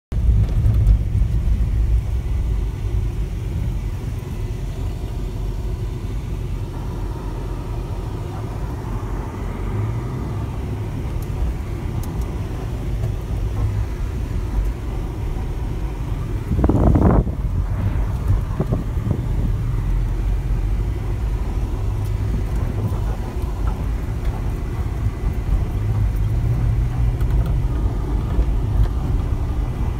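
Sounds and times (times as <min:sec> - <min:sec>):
vehicle engine rumble: 0:00.1 - 0:29.9
tyres rumbling on gravel: 0:07.5 - 0:29.9.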